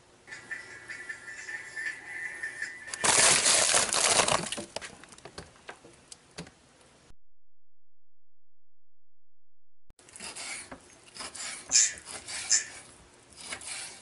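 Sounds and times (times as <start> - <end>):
freezer paper packages crinkling: 2.9 - 5.0.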